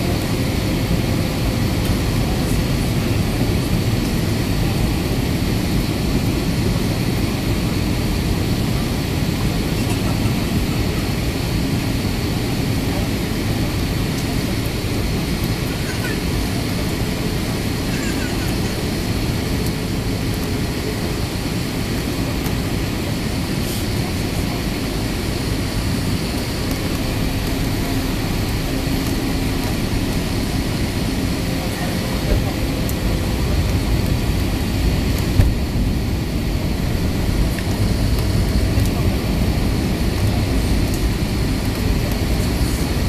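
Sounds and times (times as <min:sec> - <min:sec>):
airplane cabin engine and airflow noise: 0:00.0 - 0:43.0.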